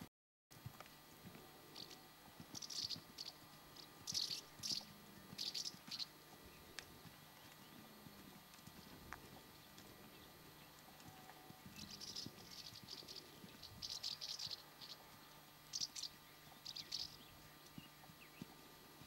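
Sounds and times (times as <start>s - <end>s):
horse hoofbeats on sand: 0.6s - 13.9s.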